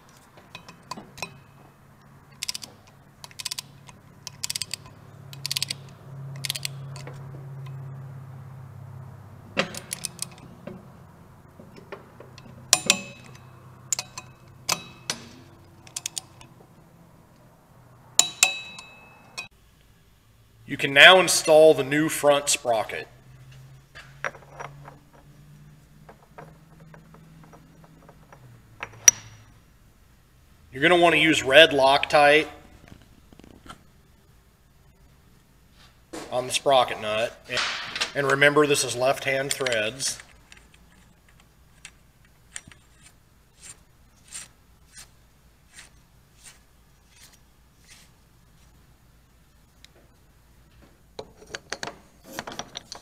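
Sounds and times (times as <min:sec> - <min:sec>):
metal nut scraping and clicking: 0:00.0 - 0:07.8, 0:09.6 - 0:10.8, 0:11.7 - 0:16.6, 0:23.5 - 0:29.4, 0:39.2 - 0:48.1.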